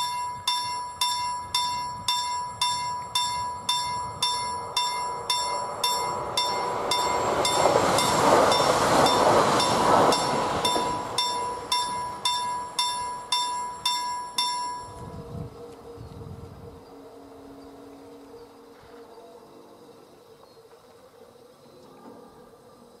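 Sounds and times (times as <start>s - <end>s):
level crossing bell ringing: 0.0s - 15.2s
train rushing on rails: 0.0s - 19.5s.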